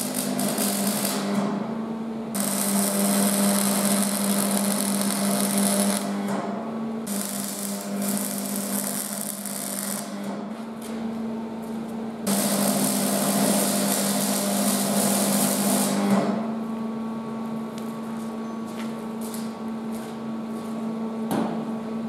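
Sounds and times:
welder arc crackling: 0.0s - 1.4s, 2.4s - 6.2s, 7.1s - 10.3s, 12.3s - 16.1s.

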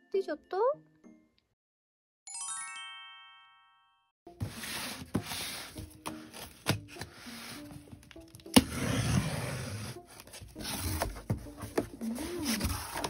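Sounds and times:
light background music: 0.0s - 1.4s, 4.3s - 13.0s
cardboard scraping and rubbing: 4.4s - 7.9s, 8.5s - 13.0s
knife cutting cardboard box: 8.4s - 13.0s.

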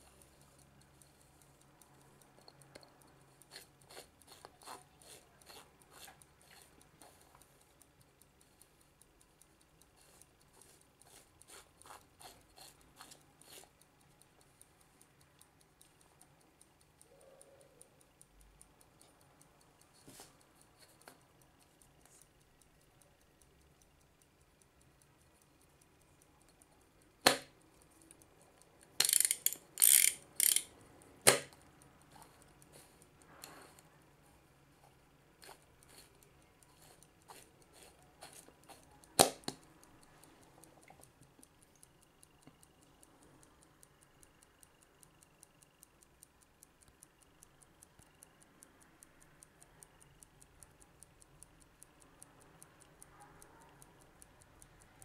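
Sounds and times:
clock bezel ratchet clicks: 0.0s - 33.9s, 35.0s - 55.0s
loud sharp clicks handling clock: 29.0s - 31.6s.

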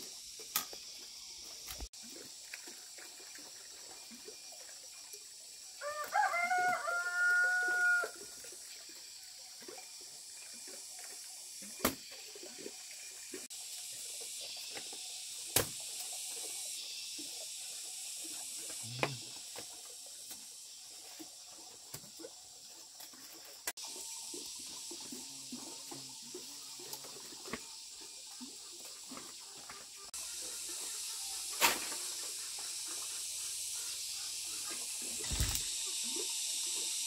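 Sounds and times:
rooster crowing: 5.8s - 8.2s.

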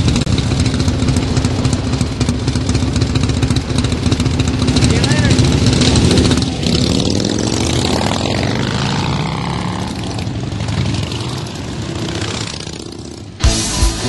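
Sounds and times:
motorcycle engines riding past: 0.0s - 13.4s
rock music with heavy beat: 13.4s - 14.0s.

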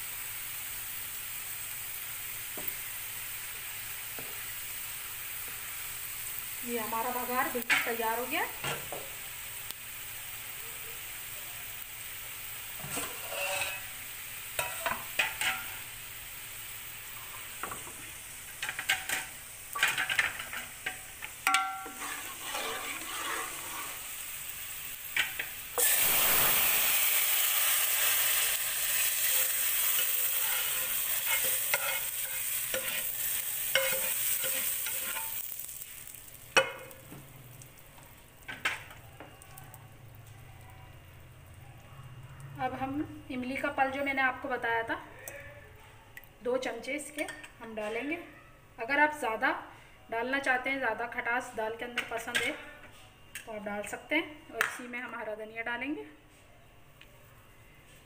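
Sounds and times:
spices sizzling in hot oil: 0.0s - 41.7s
loud sizzle: 0.0s - 41.8s.

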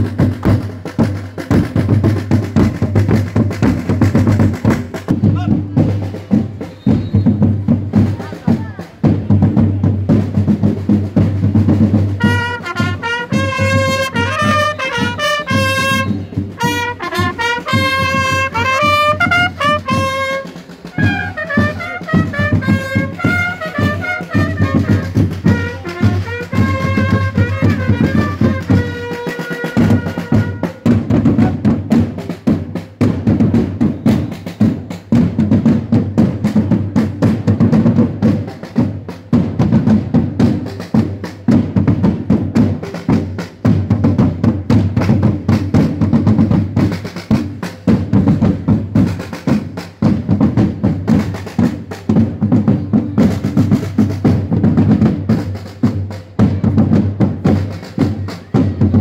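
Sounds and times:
marching drums: 0.0s - 59.0s
herald trumpets sounding a call: 12.2s - 31.7s.

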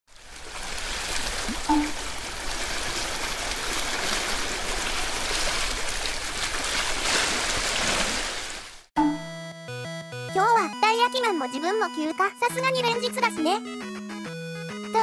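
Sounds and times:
running splashing water: 0.1s - 8.9s.

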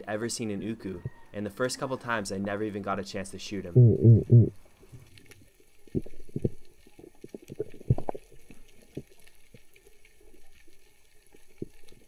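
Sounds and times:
diver grunting underwater: 3.7s - 4.5s.

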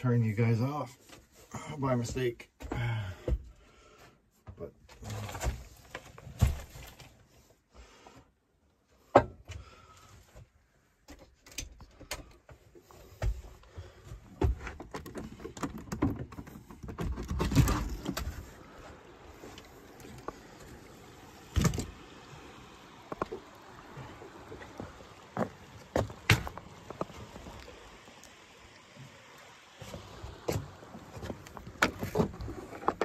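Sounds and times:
steady outdoor hiss: 17.5s - 33.0s.

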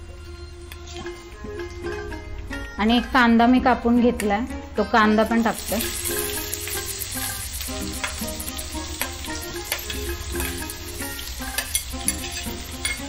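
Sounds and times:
soft background music: 0.0s - 13.0s
onion sizzling in hot oil: 5.2s - 13.0s.

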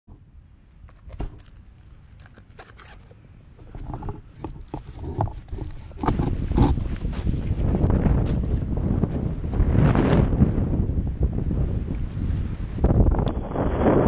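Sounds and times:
gear rustling and knocking: 3.6s - 7.5s
wind on microphone: 3.6s - 14.0s.

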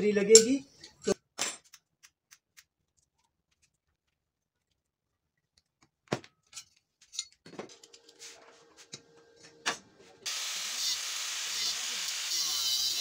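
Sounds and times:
angle grinder humming: 10.3s - 13.0s
grinder disc cutting steel: 10.3s - 13.0s.

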